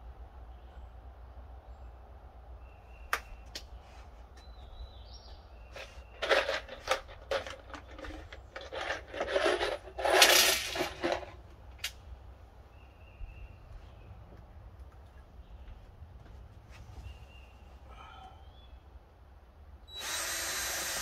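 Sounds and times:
small hard objects rattling: 0:05.8 - 0:11.4
faint bird chirps: 0:12.7 - 0:14.2, 0:16.9 - 0:19.0.

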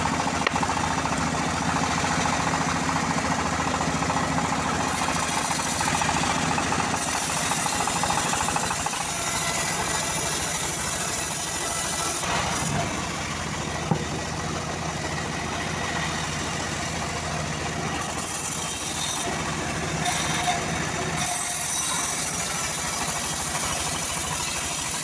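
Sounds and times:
bandsaw mill humming: 0:00.0 - 0:25.0.

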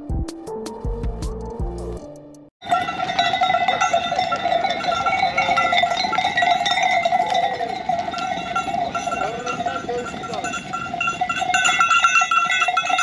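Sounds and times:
livestock bells ringing: 0:02.6 - 0:13.0.

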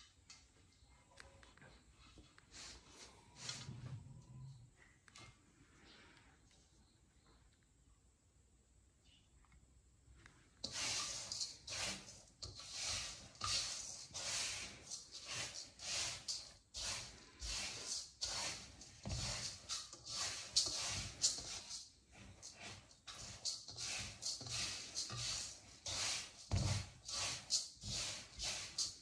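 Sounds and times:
rice grains rustling in a steel bowl: 0:10.1 - 0:29.0.

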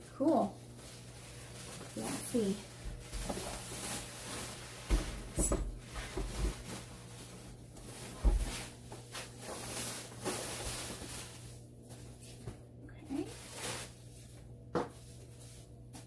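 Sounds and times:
packaging rustling: 0:00.7 - 0:11.7.

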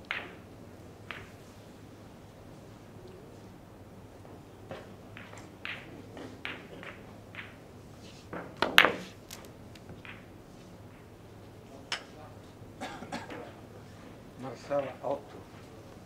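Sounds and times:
billiard balls clacking: 0:00.0 - 0:00.4, 0:01.0 - 0:01.4, 0:04.2 - 0:11.2
cue striking ball: 0:04.7 - 0:07.6, 0:08.3 - 0:09.2, 0:09.8 - 0:10.3.

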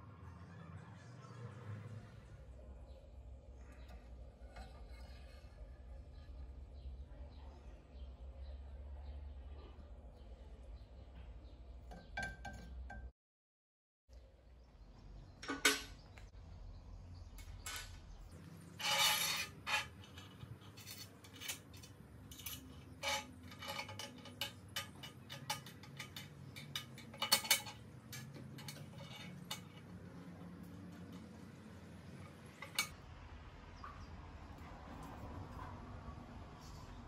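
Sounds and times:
steel parts clinking on steel table: 0:18.6 - 0:30.0, 0:32.1 - 0:33.0.

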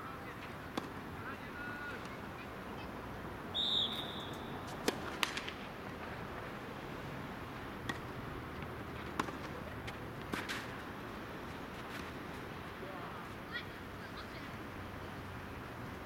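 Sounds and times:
tennis ball struck by rackets: 0:00.7 - 0:01.0, 0:04.7 - 0:05.6, 0:07.8 - 0:08.2, 0:09.0 - 0:09.5, 0:10.3 - 0:10.7.

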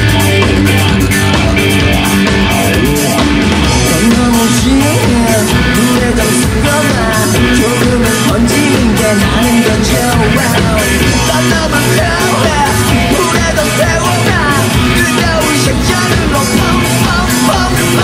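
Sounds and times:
rock band playing live: 0:00.0 - 0:18.0
lead vocal singing: 0:03.8 - 0:18.0.

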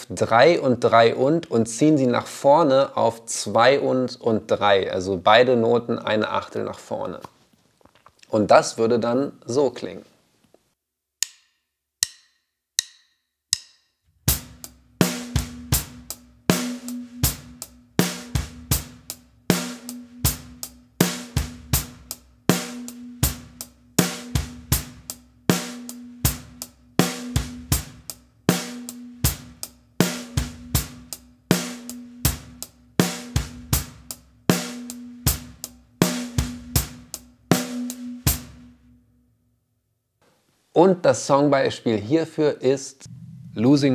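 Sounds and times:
rock drum groove: 0:14.2 - 0:38.8.

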